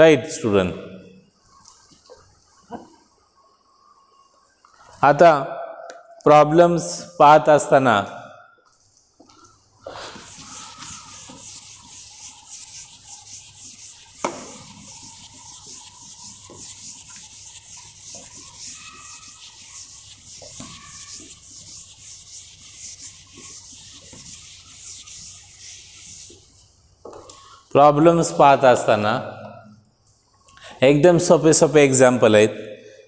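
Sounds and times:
duster wiping a chalkboard: 9.8s - 26.7s.

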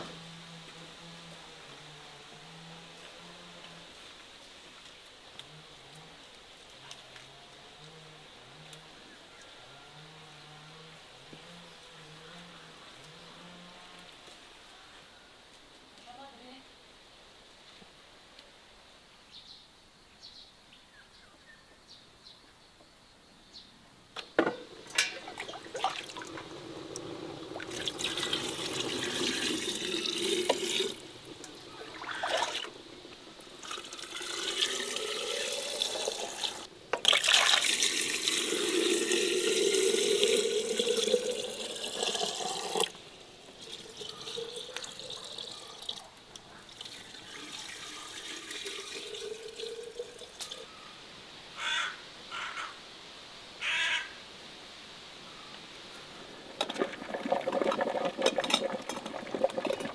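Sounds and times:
water pouring into metal pot: 24.7s - 32.8s, 33.4s - 46.1s, 46.7s - 50.7s, 56.4s - 59.9s.

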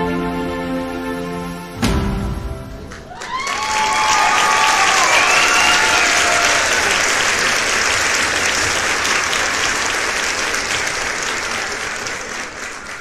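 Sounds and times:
crowd applauding: 2.7s - 13.0s.

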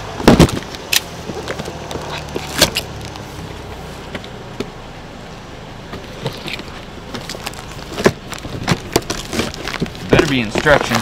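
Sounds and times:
footsteps: 5.9s - 11.0s.

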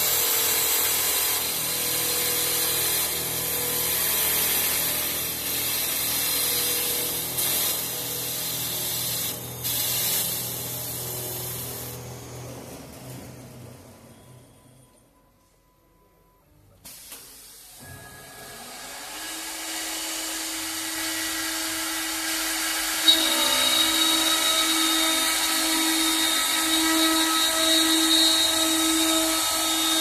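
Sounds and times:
machine motors humming: 17.8s - 30.0s
cutters shaving spinning wood: 19.2s - 30.0s.

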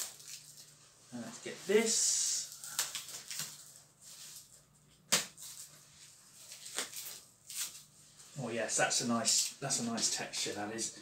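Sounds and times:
rug rustling: 0.7s - 4.7s.

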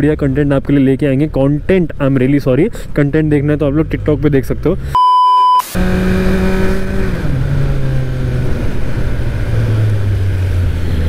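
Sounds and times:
high censor beep: 5.0s - 5.8s
motorcycle engine running: 5.8s - 11.0s.

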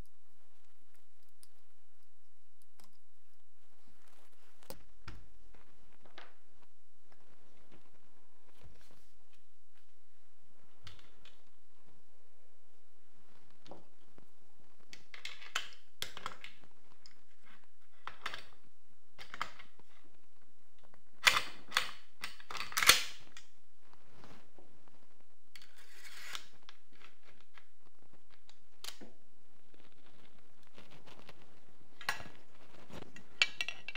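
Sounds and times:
metal gun parts clacking: 33.1s - 33.9s.

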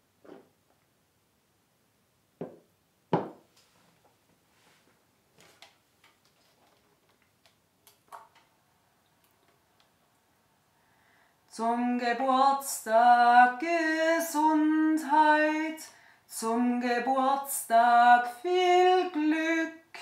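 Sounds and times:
glass set down on wooden table: 2.4s - 3.4s.

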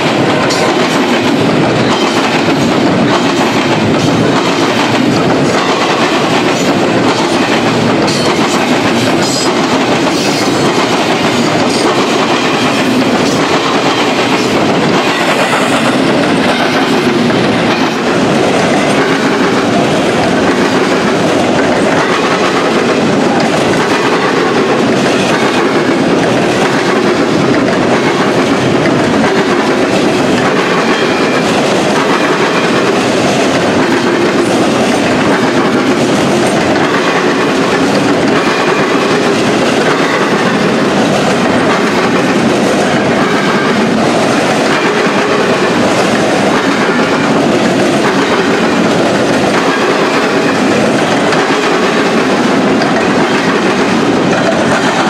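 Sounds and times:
freight train wheels rumbling on rails: 0.0s - 55.0s.

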